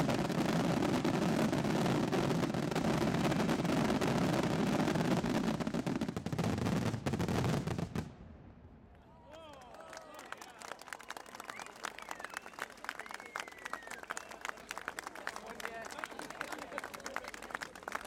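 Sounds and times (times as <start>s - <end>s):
fireworks bursting and crackling: 0.0s - 8.4s.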